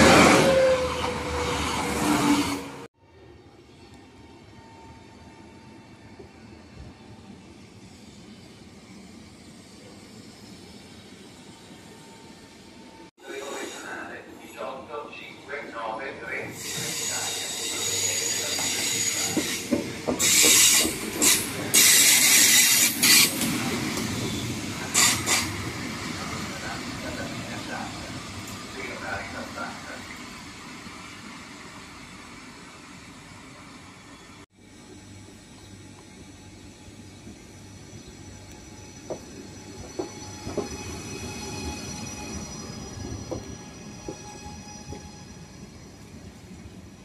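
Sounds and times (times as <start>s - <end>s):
hissing screeching bursts: 13.2s - 14.2s, 16.4s - 30.2s, 38.3s - 46.0s
train wheels rumbling on rail: 16.4s - 30.3s, 34.6s - 47.0s
knocks of train coaches: 18.6s - 22.5s.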